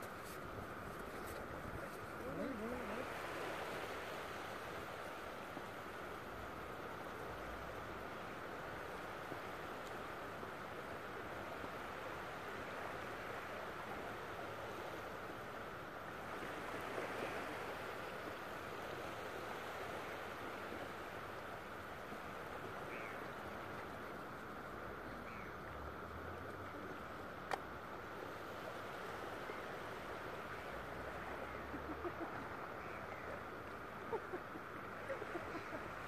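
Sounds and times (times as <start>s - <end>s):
distant surf hiss: 0.0s - 36.0s.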